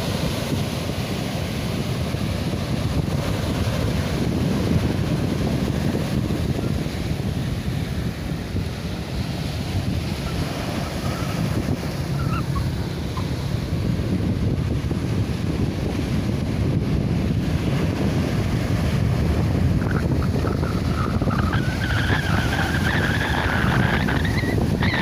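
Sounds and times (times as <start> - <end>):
sea waves on shore: 0.0 - 25.0
wind buffeting microphone: 0.0 - 25.0.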